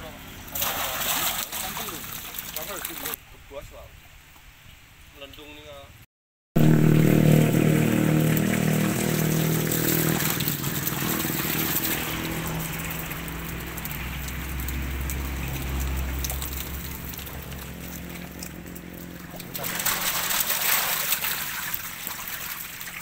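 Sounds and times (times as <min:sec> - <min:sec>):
fish thrashing in shallow water: 0:00.4 - 0:03.2, 0:06.6 - 0:23.0
low faint drone: 0:06.6 - 0:22.8.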